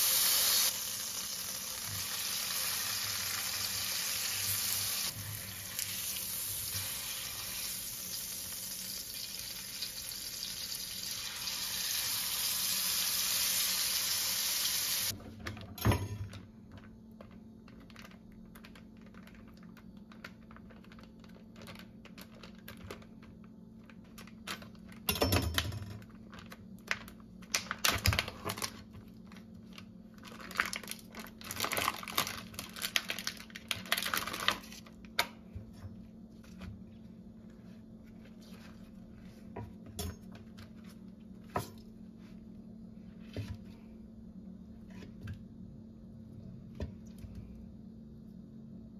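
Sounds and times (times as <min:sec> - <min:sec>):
plastic packaging crinkling and tearing: 0:17.7 - 0:25.0, 0:26.0 - 0:35.2.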